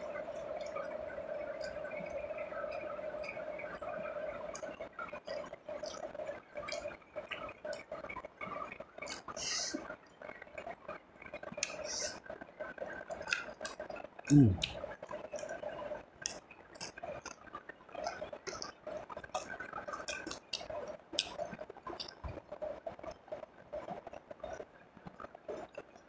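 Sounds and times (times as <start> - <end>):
steady background hum: 0.0 - 26.0
chewing: 0.1 - 26.0
small wet clicks: 0.1 - 26.0
lip smacks: 11.6 - 12.2.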